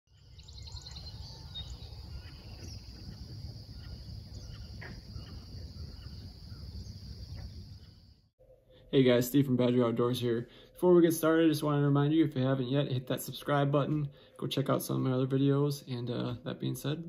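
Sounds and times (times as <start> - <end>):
bird chirps: 0.1 - 8.9
insects chorus: 0.6 - 8.2.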